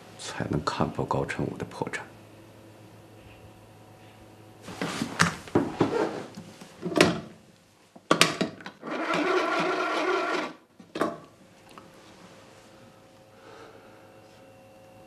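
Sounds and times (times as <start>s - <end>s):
telephone mechanical whirr: 8.8s - 10.6s.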